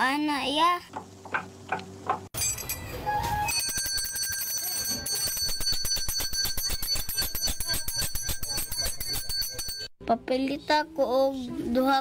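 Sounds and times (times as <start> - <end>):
hand bell rung rapidly: 3.5 - 9.9.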